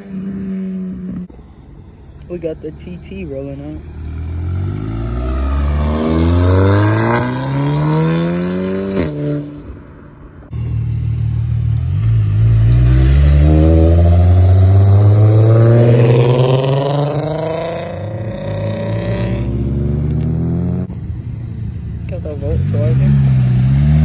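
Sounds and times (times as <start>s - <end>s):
car accelerating away: 3.9s - 9.6s, 10.6s - 20.9s, 22.1s - 24.0s.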